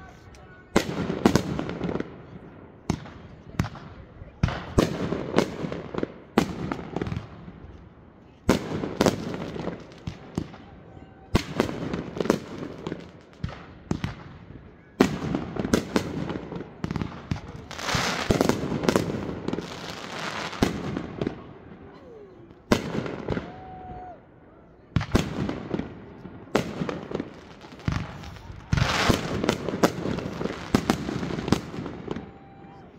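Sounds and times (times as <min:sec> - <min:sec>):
fireworks bangs: 0:00.7 - 0:07.6, 0:11.3 - 0:21.9, 0:22.6 - 0:23.9, 0:24.9 - 0:32.9
fireworks crackling: 0:08.5 - 0:21.9, 0:25.0 - 0:32.9.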